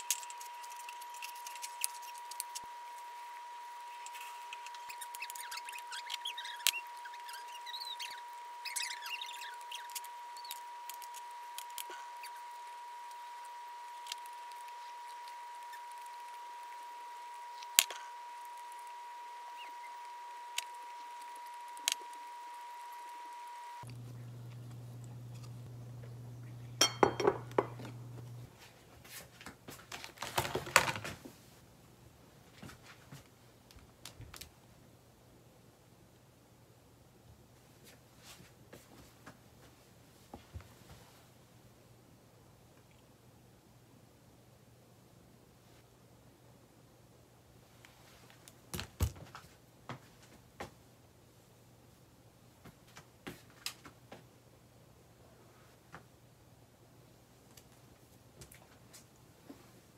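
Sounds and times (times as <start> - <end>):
low hum: 0.0 - 28.5
steady high-pitched whine: 0.0 - 28.5
rustling and handling noise: 0.0 - 31.8
tableware clicking and tapping: 26.8 - 28.0.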